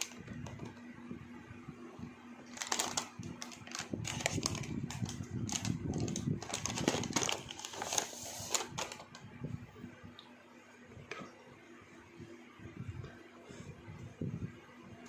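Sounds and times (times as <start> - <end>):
packet tearing open: 2.5 - 9.0
foil snack packet crinkling: 2.5 - 9.1.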